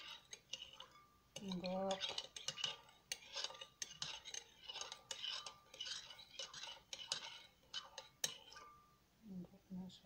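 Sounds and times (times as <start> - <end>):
spoon scraping pulp on mesh sieve: 0.0 - 8.8.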